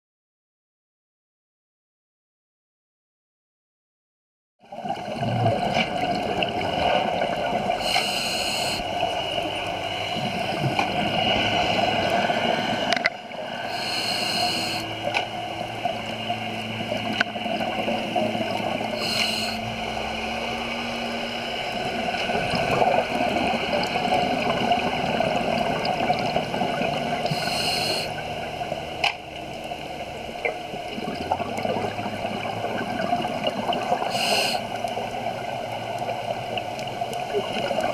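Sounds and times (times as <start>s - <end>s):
underwater noise: 4.6s - 37.9s
scuba regulator hisses: 7.8s - 8.8s, 13.6s - 14.9s, 19.0s - 19.6s, 27.3s - 28.1s, 34.1s - 34.7s.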